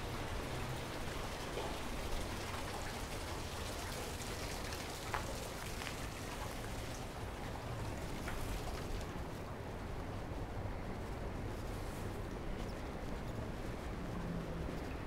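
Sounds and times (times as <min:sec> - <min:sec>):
creek running over rocks: 0:00.0 - 0:09.2.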